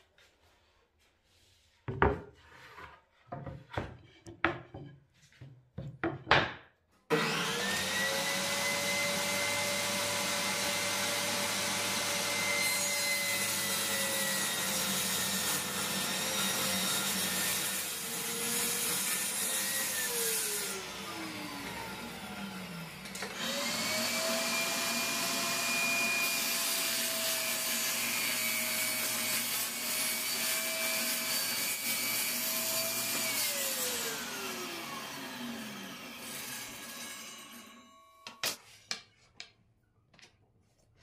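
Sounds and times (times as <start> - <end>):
wood pieces knocking on table: 5.8 - 6.7
table saw whining: 7.1 - 38.6.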